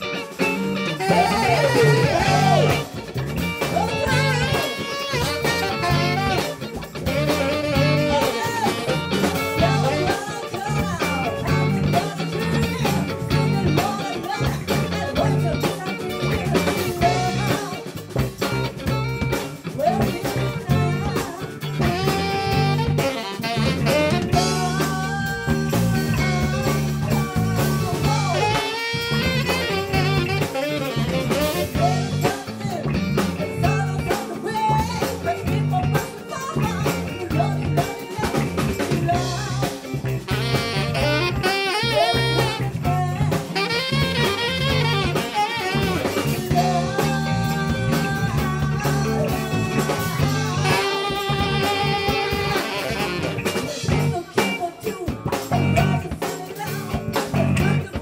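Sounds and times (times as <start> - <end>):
trumpet: 0.0 - 3.0, 3.8 - 10.3, 21.8 - 24.8, 28.2 - 32.1, 40.2 - 47.6, 49.3 - 53.8
drum kit: 0.0 - 58.0
electric bass: 0.0 - 58.0
saxophone: 0.0 - 58.0.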